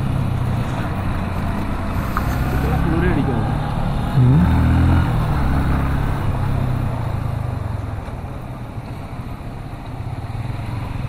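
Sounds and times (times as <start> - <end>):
road and wind noise: 0.0 - 11.0
vehicle engine rumble: 0.0 - 11.0.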